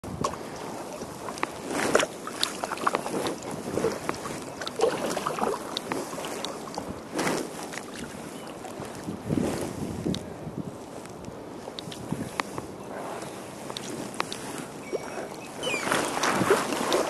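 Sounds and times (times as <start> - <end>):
kayak paddle splashing: 0.1 - 10.1, 11.6 - 17.0
water dripping off paddle: 0.2 - 6.9.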